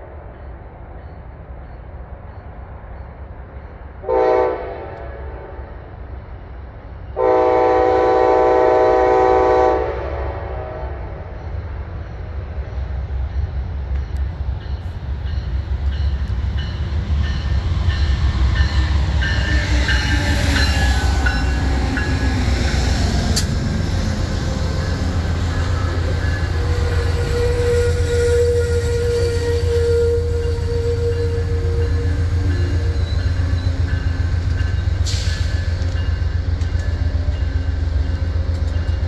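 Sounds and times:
train rumble passing: 0.0s - 39.0s
train horn: 4.0s - 6.0s, 7.2s - 11.3s, 18.3s - 22.9s, 24.6s - 34.0s.

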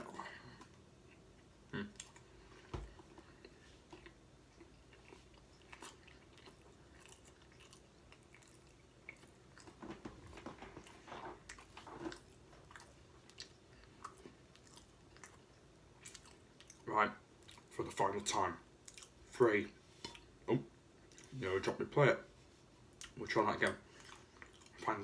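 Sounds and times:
person chewing with mouth closed: 0.0s - 16.8s, 18.8s - 19.2s, 23.9s - 24.8s.

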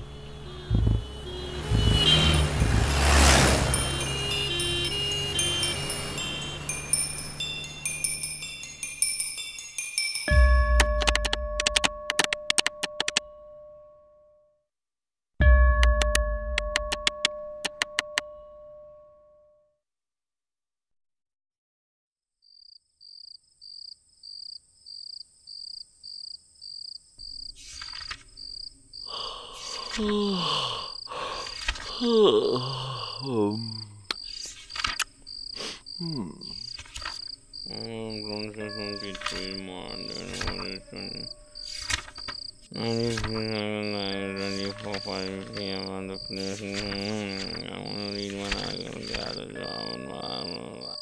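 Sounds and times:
cricket chirping: 0.0s - 10.0s, 22.4s - 51.0s
falling voice-like moan: 29.1s - 34.1s, 36.0s - 36.7s, 37.7s - 41.3s, 42.7s - 51.0s.

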